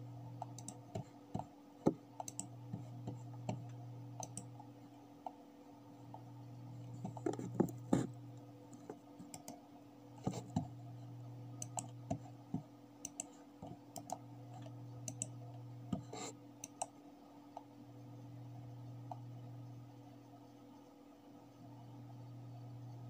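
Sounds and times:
steady low hum: 0.0s - 23.0s
computer mouse clicking: 0.4s - 4.5s, 6.8s - 8.1s, 8.7s - 9.6s, 11.6s - 17.0s.

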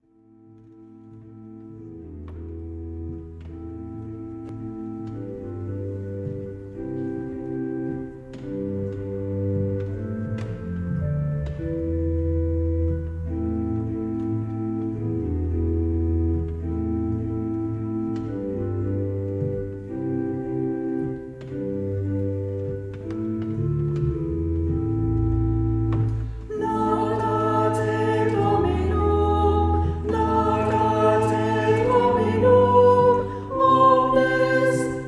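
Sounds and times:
organ playing sustained chords: 0.0s - 35.0s
voices singing: 26.5s - 35.0s.

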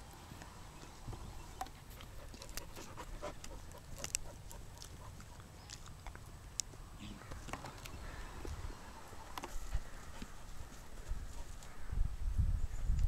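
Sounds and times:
dog gnawing wooden stick: 1.6s - 8.6s, 9.2s - 11.7s.

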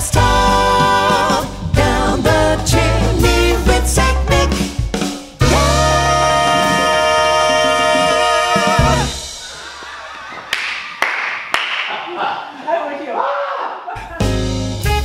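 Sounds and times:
swing jazz band playing: 0.0s - 9.4s, 14.2s - 15.0s
vocal trio singing with vibrato: 0.0s - 10.3s.

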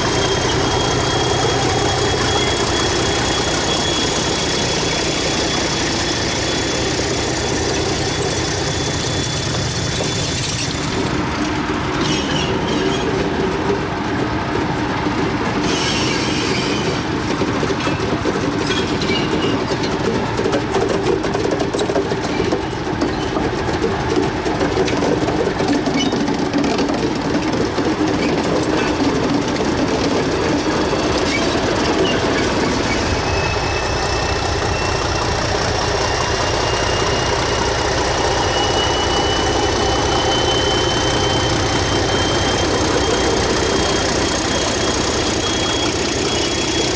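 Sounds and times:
high wheel squeal: 0.0s - 13.7s, 15.6s - 46.9s
diesel locomotive engine running: 0.0s - 46.9s
wheels clicking over rails: 0.0s - 46.9s.

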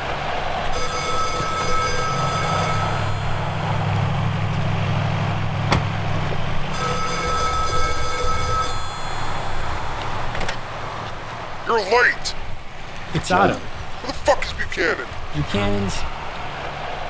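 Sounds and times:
payphone ringing: 0.7s - 4.2s, 6.7s - 10.8s.

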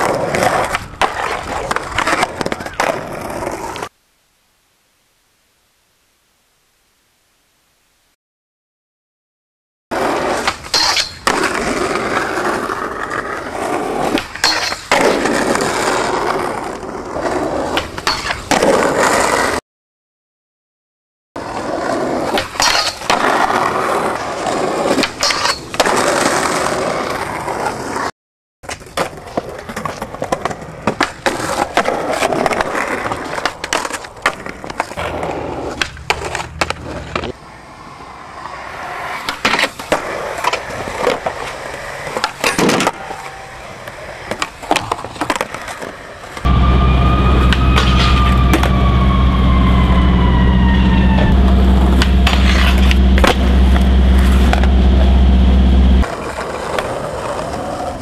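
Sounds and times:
skateboard wheels rolling on pavement: 0.0s - 4.0s, 9.9s - 19.6s, 21.4s - 58.0s
skateboard clacks and impacts: 22.0s - 37.4s, 39.1s - 46.5s
siren: 46.4s - 56.0s
loud low rumble: 46.5s - 56.0s.

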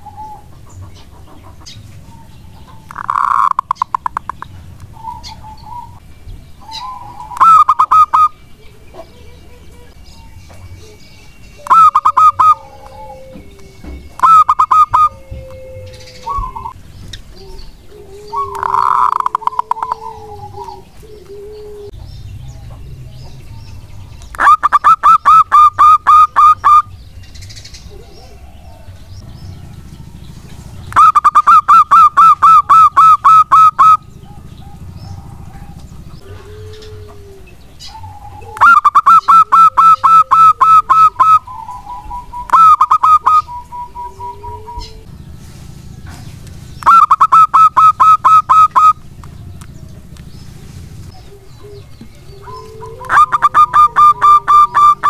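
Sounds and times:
dove staccato cooing: 0.0s - 6.0s, 6.6s - 23.6s, 24.2s - 45.2s, 45.8s - 55.0s
soft low coos: 15.1s - 22.0s, 27.8s - 30.2s, 34.8s - 38.6s.

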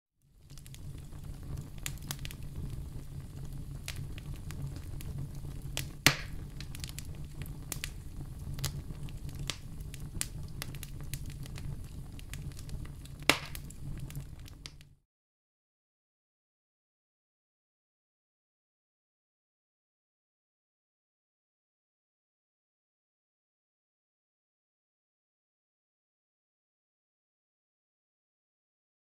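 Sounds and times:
fire popping: 0.2s - 15.0s
campfire crackling: 0.3s - 15.0s.

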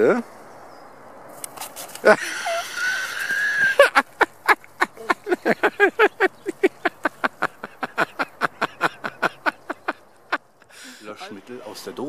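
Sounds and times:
person laughing: 2.0s - 10.0s.

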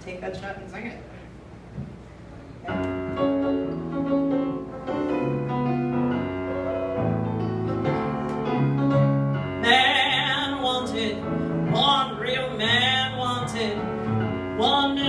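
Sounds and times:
piano chords and melody: 2.7s - 15.0s.

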